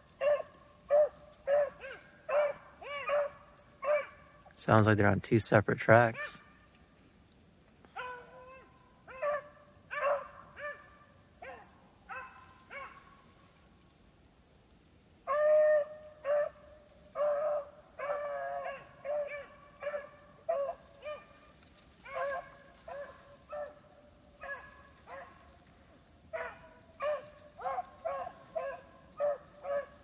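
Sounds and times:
dogs baying: 0.2s - 4.3s, 7.9s - 13.2s, 15.3s - 25.6s, 26.3s - 30.0s.

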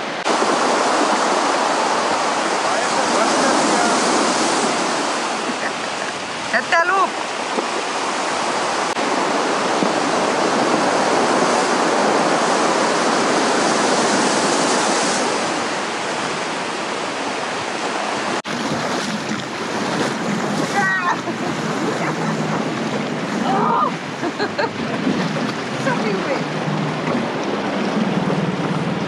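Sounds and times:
rough water: 0.0s - 29.0s
surf on pebble beach: 0.0s - 29.0s
wind noise on microphone: 0.0s - 29.0s.

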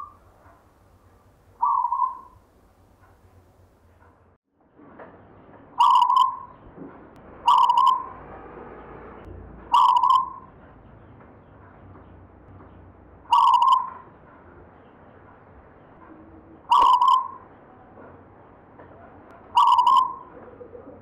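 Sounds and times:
dove cooing: 1.6s - 2.4s, 5.8s - 6.5s, 7.5s - 8.1s, 9.7s - 10.4s, 13.3s - 14.1s, 16.7s - 17.4s, 19.4s - 21.0s.

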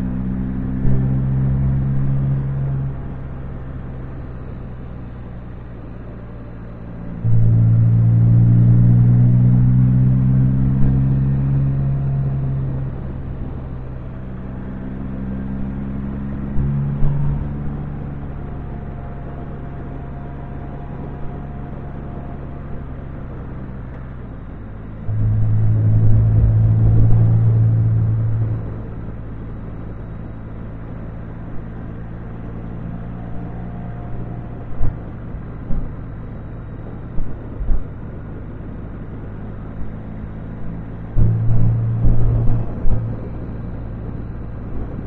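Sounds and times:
road noise: 0.0s - 45.0s
motorcycle engine under throttle: 7.2s - 30.4s.

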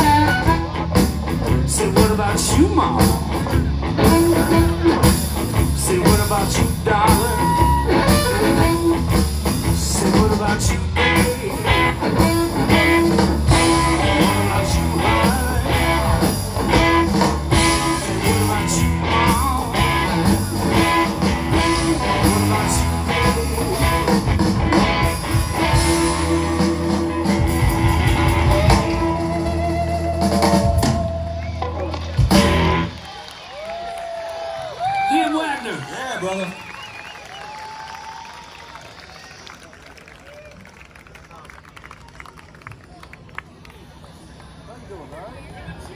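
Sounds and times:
drum kit: 0.0s - 33.0s
electric guitars: 0.0s - 33.8s
bass: 0.0s - 38.1s.

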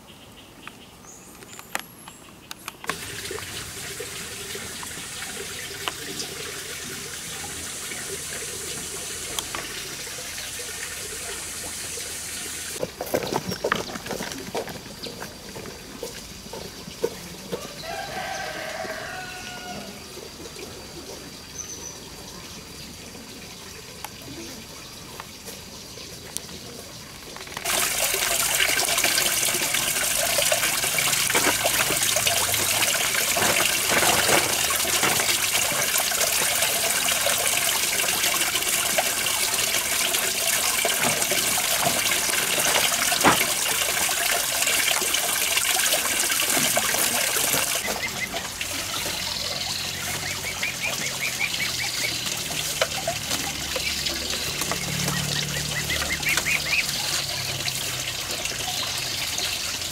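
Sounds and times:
water rushing: 2.8s - 59.9s
bird calls: 47.6s - 57.3s.

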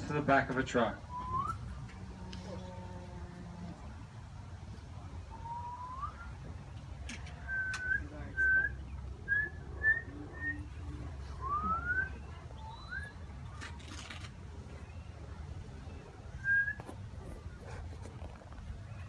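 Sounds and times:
rising whistles: 1.1s - 1.7s, 5.4s - 6.4s
short whistles: 1.1s - 1.7s, 5.4s - 6.3s, 7.4s - 10.6s, 16.4s - 17.0s.

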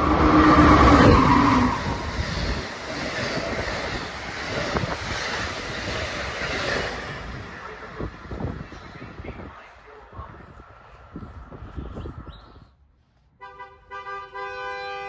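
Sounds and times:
passenger cars passing: 0.0s - 12.7s
rushing wheel and air noise: 0.0s - 13.4s
clicks from passing train: 1.6s - 9.7s
train horn chord: 13.4s - 15.0s.

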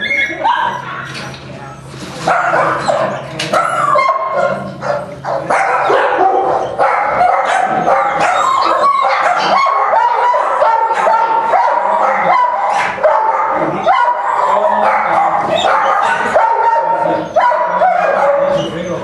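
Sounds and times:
puppies squealing and whimpering: 0.0s - 1.6s, 2.3s - 19.0s.

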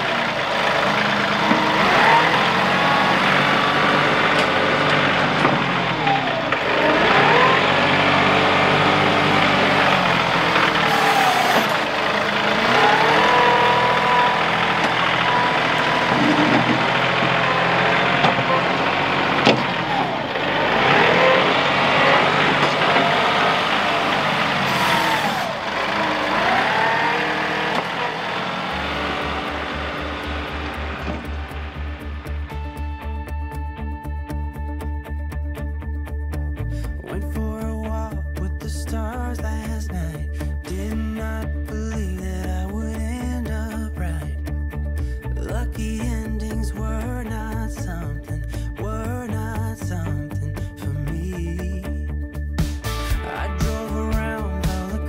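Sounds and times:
heavy diesel engine under load: 0.0s - 32.6s
high whine rising and falling: 0.0s - 34.7s.

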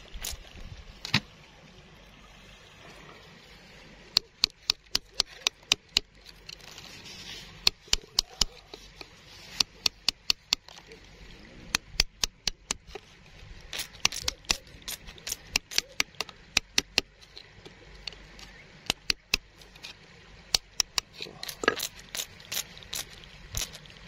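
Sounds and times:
digging tool tapping stone: 4.2s - 6.1s, 7.6s - 8.7s, 9.6s - 10.7s, 15.2s - 17.2s, 20.5s - 21.9s
gritty scrape on gravel: 6.6s - 7.6s.

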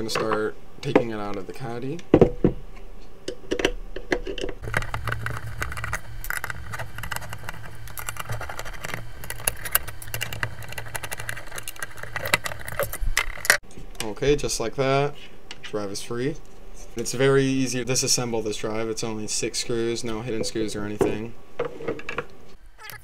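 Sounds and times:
small metallic clicks and rattles: 3.5s - 13.6s
low hum: 4.6s - 13.7s.

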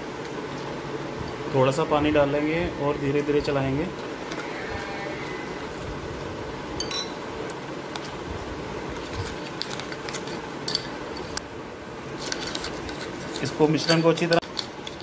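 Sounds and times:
spoon clinking on glass: 6.8s - 7.2s.

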